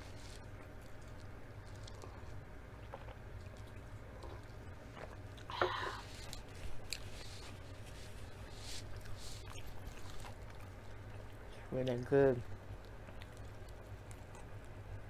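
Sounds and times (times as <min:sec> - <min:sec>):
low steady hum: 0:00.0 - 0:15.0
drinking and swallowing: 0:02.0 - 0:07.6
lip smacks and mouth clicks: 0:08.8 - 0:11.5, 0:12.7 - 0:14.8.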